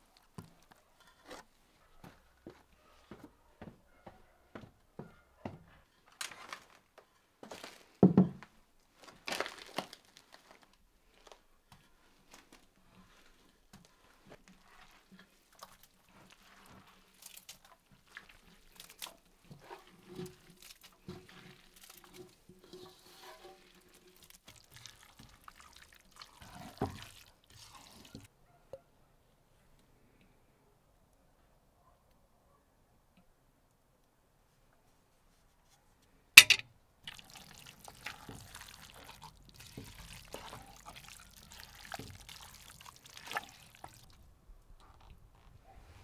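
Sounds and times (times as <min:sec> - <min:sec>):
handling knocks and rustles: 0:00.3 - 0:15.3, 0:36.4 - 0:36.6
spoon stirring in a pot: 0:11.7 - 0:28.3, 0:36.4 - 0:44.1
wet cabbage scraped off plate: 0:12.1 - 0:25.4
juice dripping: 0:24.2 - 0:28.3, 0:37.0 - 0:44.2.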